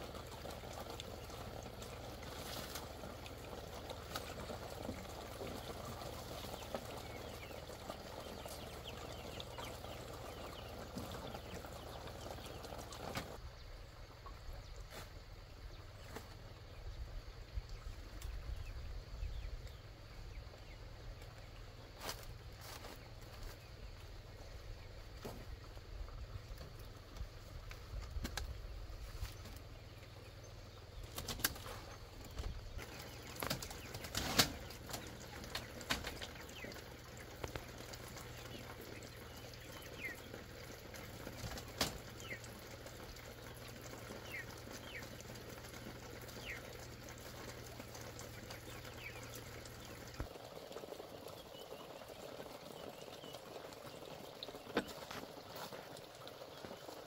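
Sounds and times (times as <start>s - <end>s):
bamboo panels knocking and rustling: 33.3s - 35.0s.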